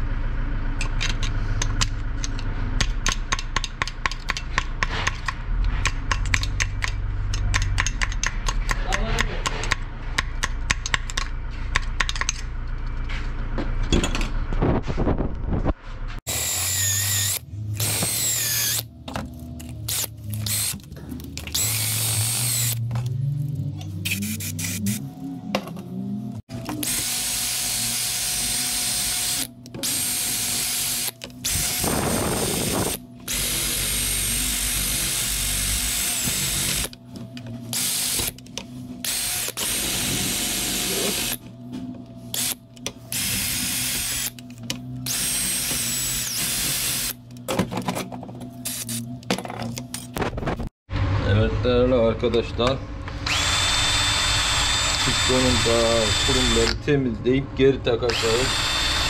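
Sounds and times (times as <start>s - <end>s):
hand-held power tool in bursts: 16.3s - 18.9s, 19.9s - 22.8s, 24.0s - 25.0s, 26.6s - 37.0s, 37.7s - 38.4s, 39.0s - 41.4s, 42.3s - 44.4s, 45.0s - 47.2s, 48.6s - 49.0s, 53.2s - 56.8s, 58.1s - 59.0s.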